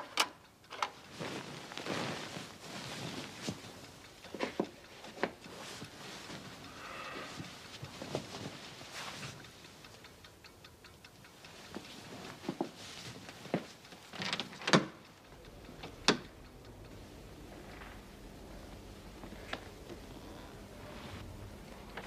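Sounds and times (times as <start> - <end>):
rustling: 0.9 - 9.9, 11.4 - 14.6.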